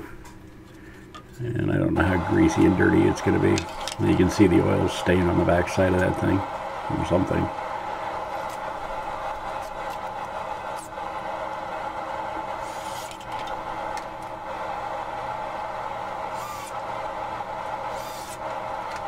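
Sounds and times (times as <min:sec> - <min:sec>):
steady mechanical drone: 0:00.7 - 0:19.0
cordless drill whirring: 0:12.6 - 0:14.4, 0:16.3 - 0:16.8, 0:17.9 - 0:19.0.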